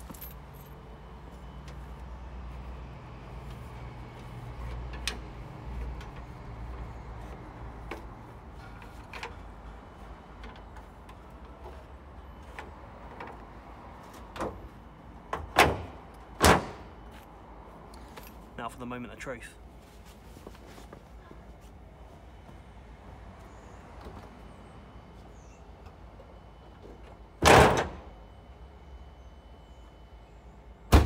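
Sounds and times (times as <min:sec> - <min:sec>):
car bonnet banging shut: 0:27.4 - 0:28.1.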